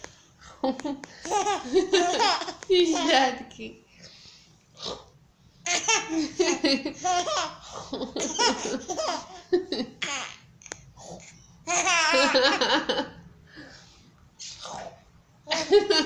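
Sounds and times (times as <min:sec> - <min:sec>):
baby laughing: 0:01.2 - 0:03.2, 0:05.7 - 0:10.5, 0:11.7 - 0:12.8.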